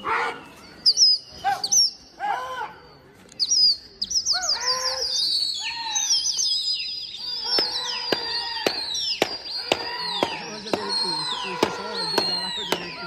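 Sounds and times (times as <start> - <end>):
birds chirping: 0.0 - 13.0
sharp crack: 7.5 - 10.9.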